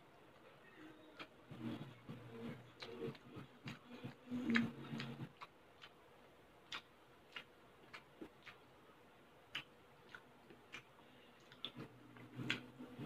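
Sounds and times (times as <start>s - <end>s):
person chewing: 0.3s - 8.8s, 9.4s - 13.0s
lip smacks: 1.2s - 6.0s, 6.6s - 8.7s, 9.5s - 13.0s.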